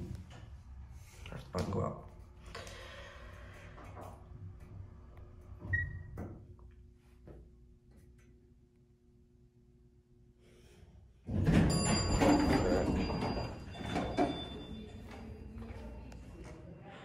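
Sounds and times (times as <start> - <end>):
faint elevator hum: 0.0 - 17.0
elevator doors sliding open: 11.3 - 15.8.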